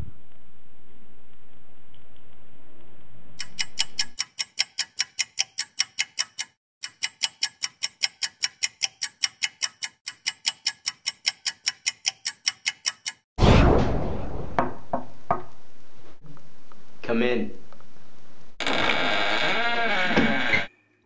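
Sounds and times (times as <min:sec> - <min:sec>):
clock ticking fast: 0:03.4 - 0:13.3.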